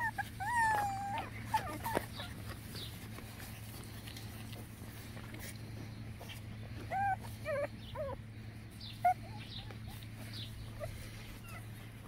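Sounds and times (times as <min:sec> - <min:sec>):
puppies whimpering: 0:00.0 - 0:12.0
steady low hum: 0:00.0 - 0:12.0.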